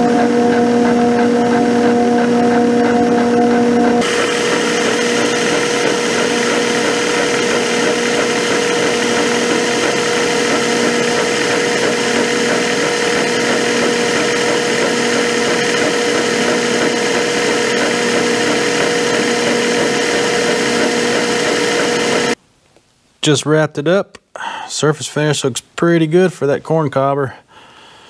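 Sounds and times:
cutter grinding: 0:00.0 - 0:22.4
milling machine cutting metal: 0:00.0 - 0:22.4.

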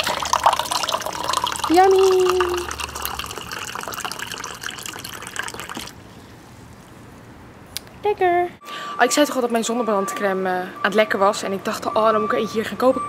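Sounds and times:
water filling plastic cup: 0:00.0 - 0:06.0.

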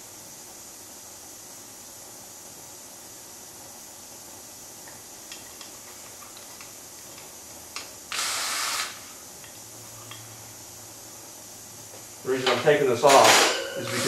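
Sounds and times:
cordless drill burst: 0:08.1 - 0:09.0.

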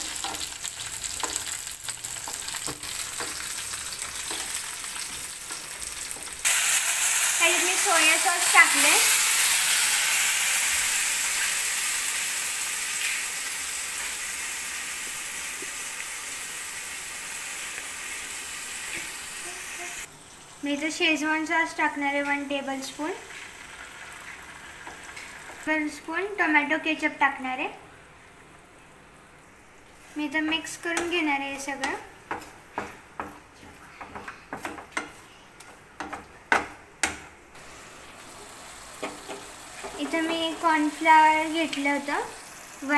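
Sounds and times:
vegetables sizzling in hot oil: 0:00.0 - 0:27.5, 0:37.5 - 0:42.9
spatula knocking frying pan: 0:02.2 - 0:03.6, 0:04.2 - 0:06.4, 0:31.8 - 0:33.4, 0:34.0 - 0:37.4.

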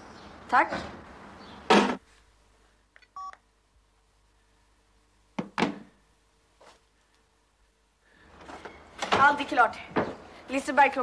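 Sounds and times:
telephone two-tone beep: 0:03.2 - 0:03.4.

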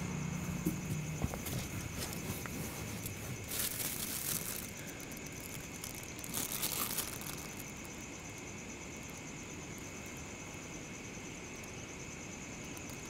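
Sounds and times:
plastic and paper bags rustling: 0:01.2 - 0:04.8, 0:05.4 - 0:07.6.

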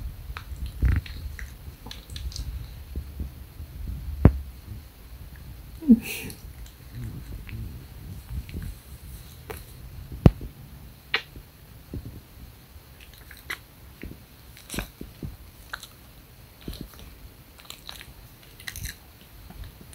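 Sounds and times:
puppy licking and mouthing: 0:00.4 - 0:02.6, 0:13.0 - 0:16.0.

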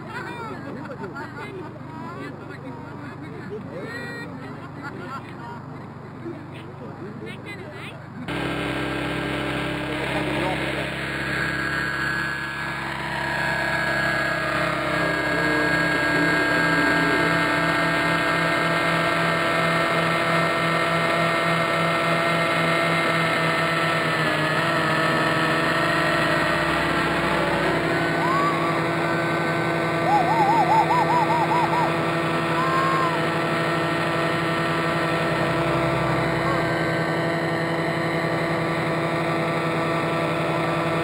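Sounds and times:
model helicopter motor and rotors whining: 0:00.0 - 0:41.0
quick warbling chirps: 0:30.0 - 0:33.2.

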